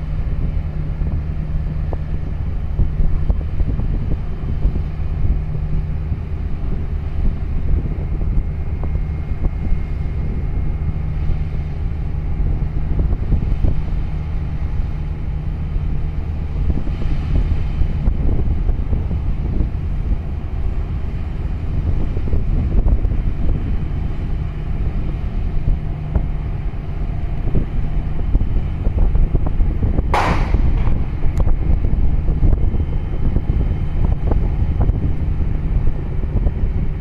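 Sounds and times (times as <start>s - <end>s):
boat engine droning: 0.0s - 37.0s
water noise: 0.0s - 37.0s
wind on microphone: 0.0s - 37.0s.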